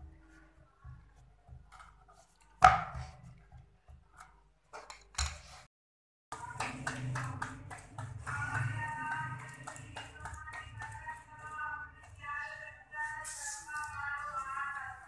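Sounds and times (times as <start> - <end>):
dough patted between palms: 6.3 - 12.5.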